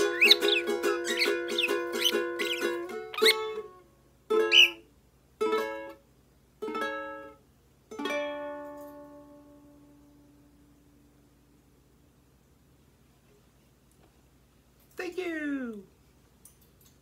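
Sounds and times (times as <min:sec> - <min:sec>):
bird chirps: 0:00.0 - 0:03.5, 0:04.5 - 0:04.8
ukulele strumming: 0:00.0 - 0:03.7, 0:05.4 - 0:06.0, 0:06.6 - 0:09.6.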